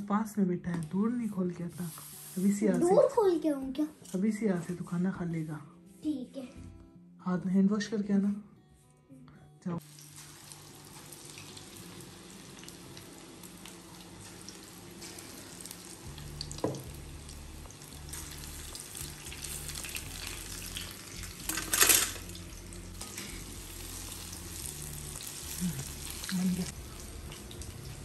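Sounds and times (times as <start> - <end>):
batter sizzling in hot oil: 9.8 - 28.0.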